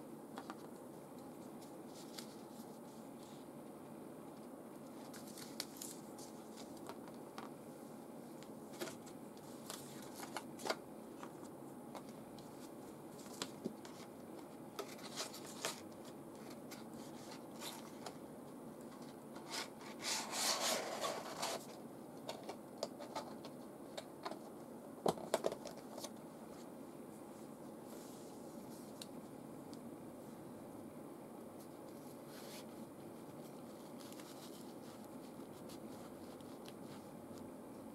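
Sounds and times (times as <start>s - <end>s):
paper and packaging rustling: 4.9s - 7.4s, 8.7s - 14.1s, 14.8s - 18.2s.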